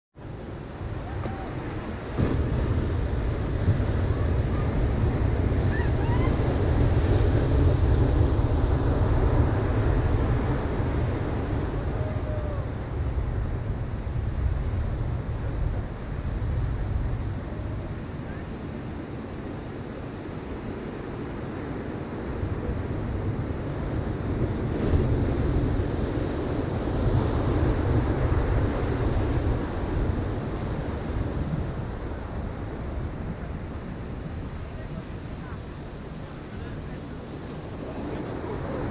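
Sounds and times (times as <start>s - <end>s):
ocean waves breaking: 0.2s - 38.9s
wind rumble on microphone: 0.2s - 38.9s.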